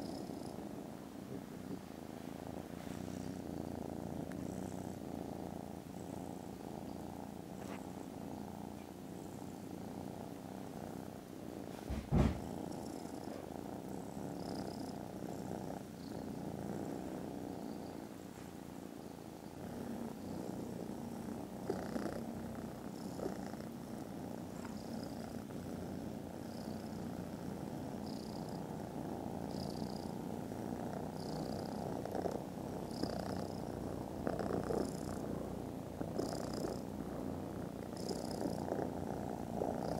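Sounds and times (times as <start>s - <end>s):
kittens purring: 0.0s - 39.9s
sharp thump: 11.8s - 12.5s.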